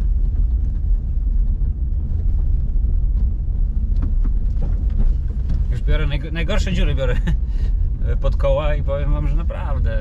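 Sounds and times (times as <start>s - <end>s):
tyres rumbling on rough road: 0.0s - 10.0s.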